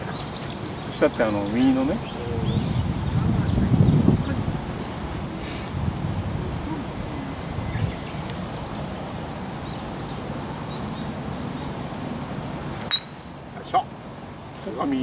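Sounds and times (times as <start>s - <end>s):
faint bird chirps: 0.0s - 4.4s, 6.2s - 9.0s
wind on microphone: 0.0s - 12.8s.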